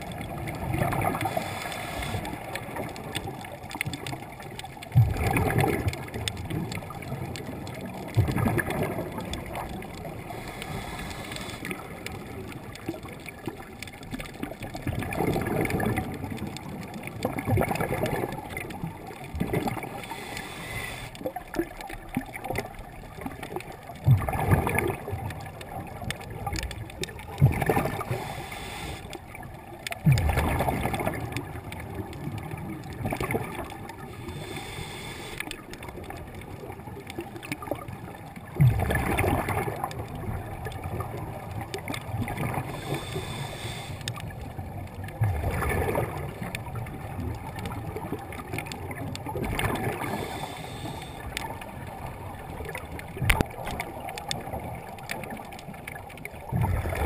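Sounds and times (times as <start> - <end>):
water rushing: 0.0 - 57.0
regulator breathing bubbles: 42.4 - 44.2, 49.5 - 51.4.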